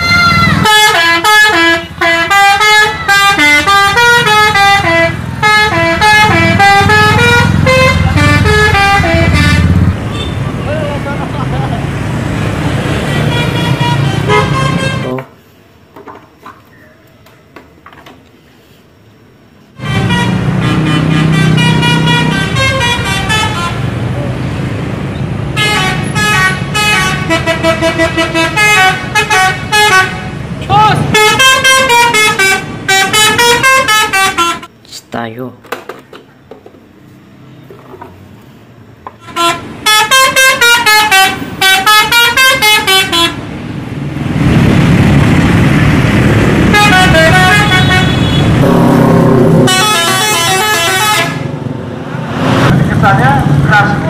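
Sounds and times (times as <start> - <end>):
bus diesel engine running: 0.0 - 15.9, 18.4 - 34.8, 36.3 - 54.0
passing traffic: 0.0 - 54.0
musical air horn playing tune: 0.5 - 10.3, 13.2 - 15.1, 19.8 - 23.8, 25.6 - 30.3, 31.1 - 34.7, 39.2 - 43.4, 46.7 - 48.8, 49.5 - 51.5.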